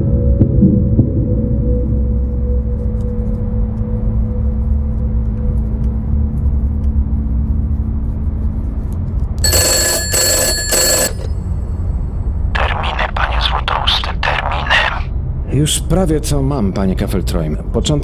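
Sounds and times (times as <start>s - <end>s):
low steady drone: 0.0s - 9.3s
telephone bell ringing: 9.4s - 11.8s.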